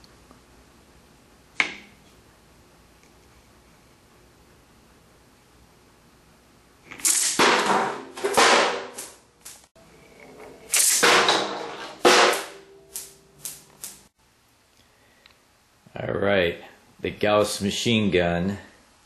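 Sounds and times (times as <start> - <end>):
ball bearings banging metal pan: 10.7 - 12.7.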